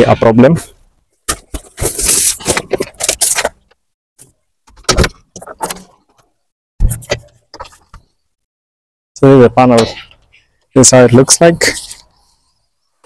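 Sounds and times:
cardboard scraping and rustling: 1.3s - 3.6s.

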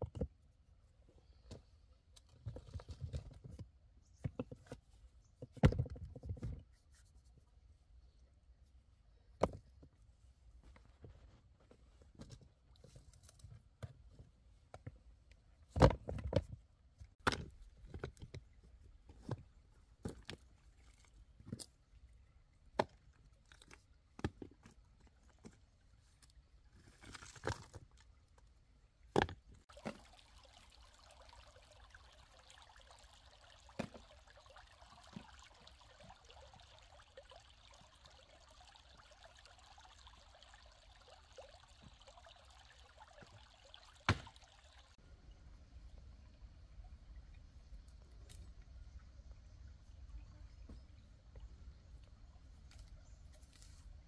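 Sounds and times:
water trickling and pouring: 29.6s - 45.0s.

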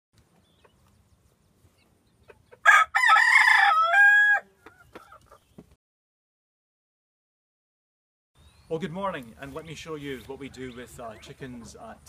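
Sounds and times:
rooster crowing: 2.6s - 4.5s.

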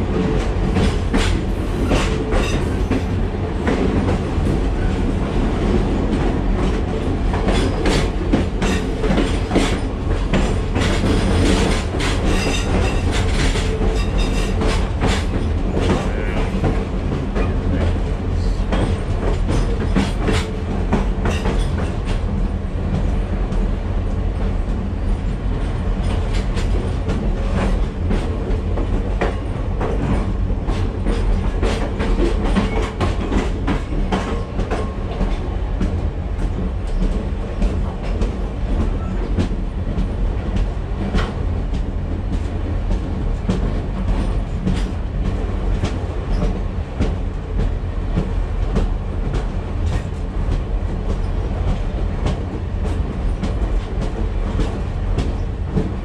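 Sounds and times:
train wheels rumbling on track: 0.0s - 56.0s
wheels clanking over rail joints: 5.9s - 23.7s.

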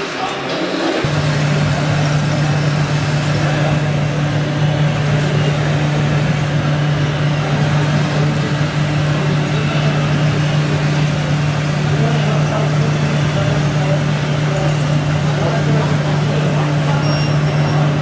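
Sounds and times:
electronic diesel engine hum: 0.0s - 18.0s.

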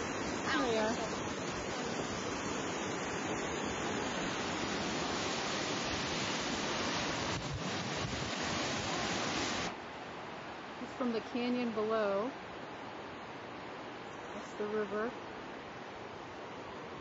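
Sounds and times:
waterfall rushing: 0.0s - 11.2s.

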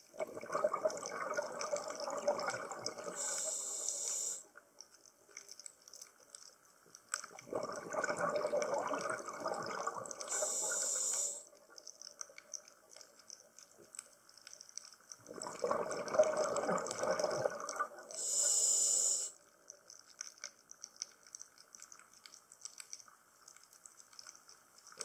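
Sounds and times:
gurgling exhaled bubbles: 0.0s - 3.5s, 7.4s - 10.8s, 15.2s - 18.3s
regulator hiss: 3.1s - 4.5s, 10.3s - 11.5s, 18.2s - 19.4s.

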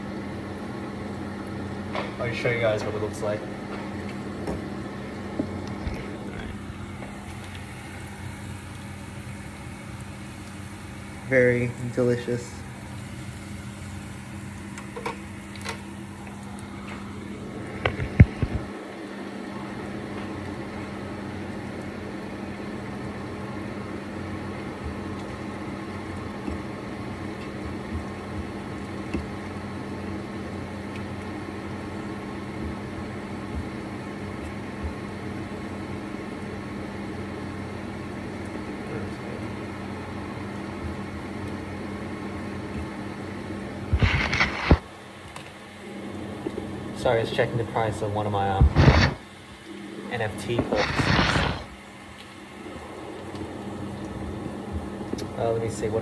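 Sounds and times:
food sizzling in a pan: 6.7s - 17.5s.

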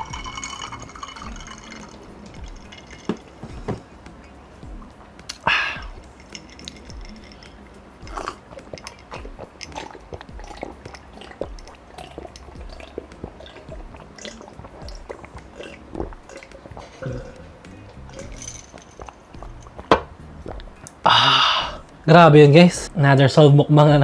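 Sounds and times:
mouth clicks: 5.3s - 6.0s
person gulping water: 8.1s - 18.4s.

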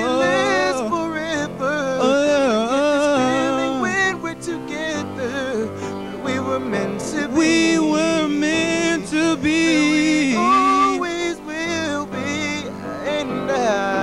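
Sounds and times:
man singing: 0.0s - 14.0s.

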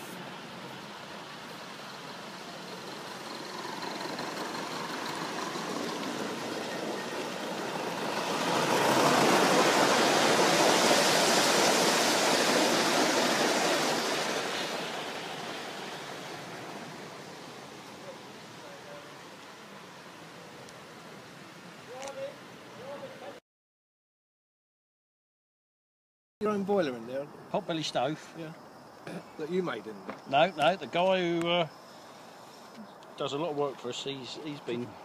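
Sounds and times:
model train wheels rumbling on rails: 0.0s - 20.5s.

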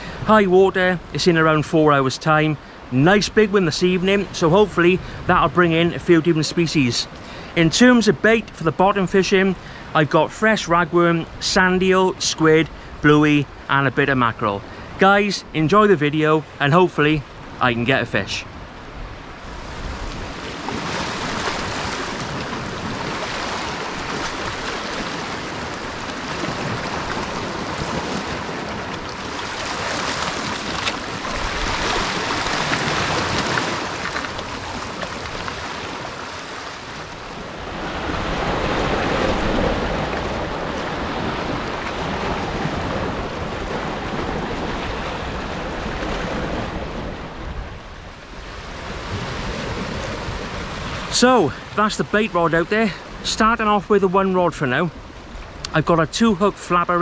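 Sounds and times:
sea washing against rocks: 19.4s - 57.0s.

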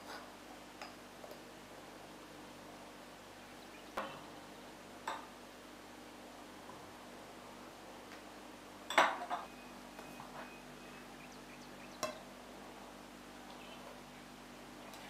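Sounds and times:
glassware clinking: 8.9s - 9.5s.

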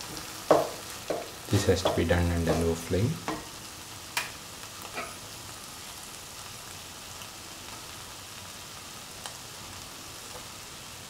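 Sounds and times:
food sizzling in a pan: 0.0s - 11.0s.

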